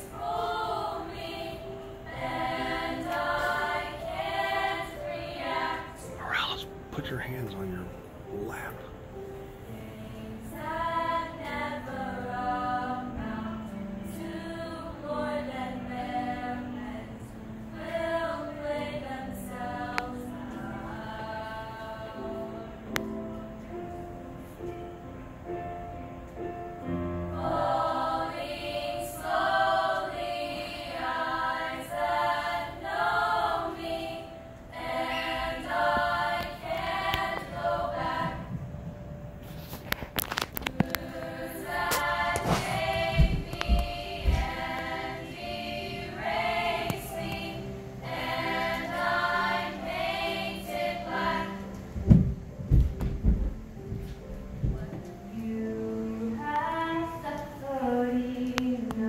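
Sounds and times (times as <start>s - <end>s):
female choir singing: 0.0s - 6.8s, 9.1s - 24.0s, 26.8s - 38.8s, 39.5s - 52.2s, 54.6s - 59.0s
low bumps: 38.0s - 45.0s, 51.9s - 55.1s.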